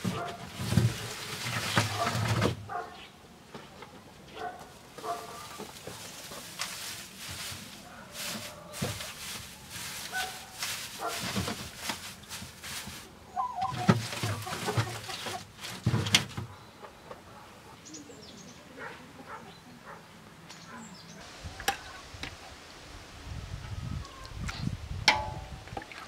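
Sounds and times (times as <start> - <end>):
chickens clucking: 0.0 - 18.1
knocks and clatters: 13.6 - 16.5.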